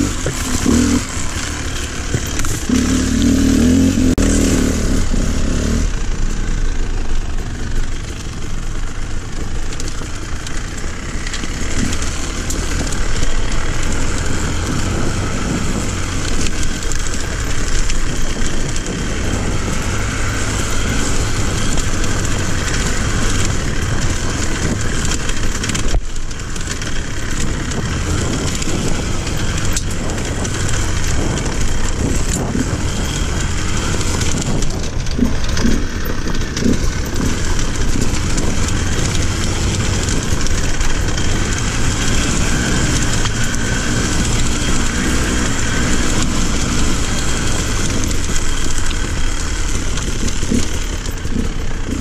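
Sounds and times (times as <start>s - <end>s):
dirt bike engine running: 0.0s - 52.0s
rattling and clatter of stones: 0.0s - 52.0s.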